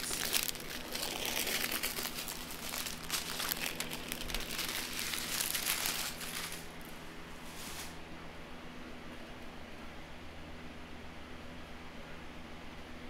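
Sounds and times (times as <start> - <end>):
small plastic bags crinkling: 0.0 - 7.0.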